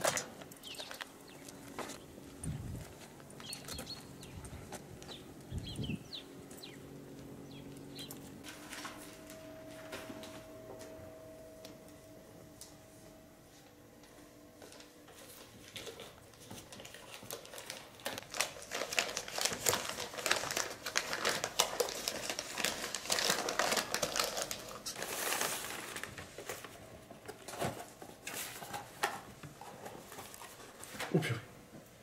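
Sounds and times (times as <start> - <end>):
wrapping paper crinkling: 14.7 - 26.8.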